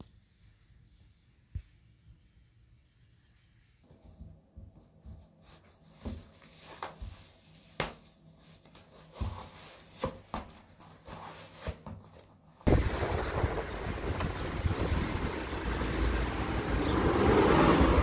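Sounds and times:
cloth rustling: 0:04.9 - 0:12.7
outdoor wind rushing: 0:12.6 - 0:18.0.

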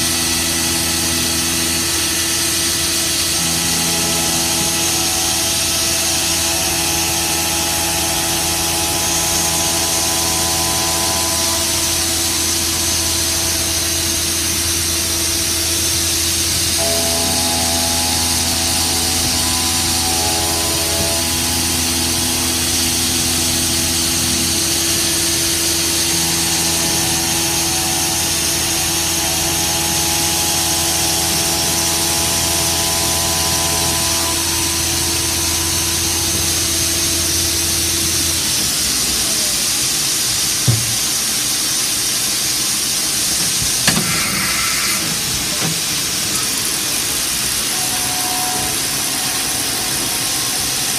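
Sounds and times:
milling machine motors humming: 0:00.0 - 0:50.9
sharp knocks: 0:40.7 - 0:41.2.

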